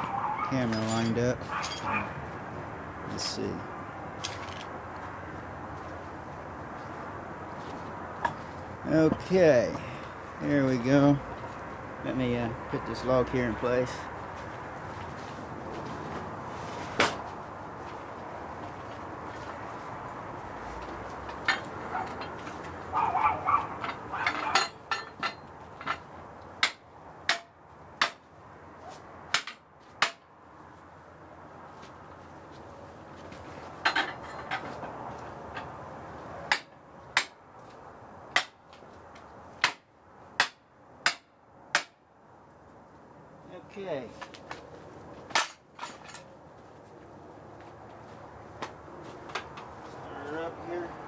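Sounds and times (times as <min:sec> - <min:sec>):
metallic knocks and clanks: 0:23.8 - 0:28.2, 0:33.8 - 0:35.8.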